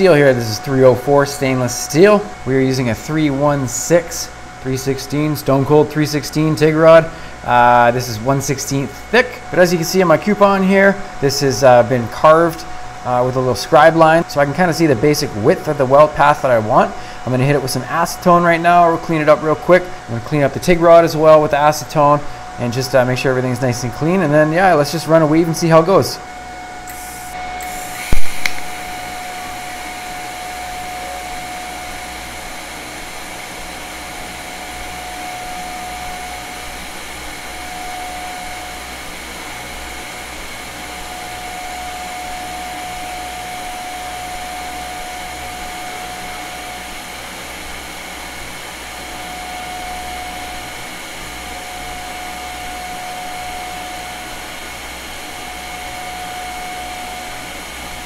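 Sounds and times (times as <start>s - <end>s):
welding arc hissing: 26.8s - 31.8s.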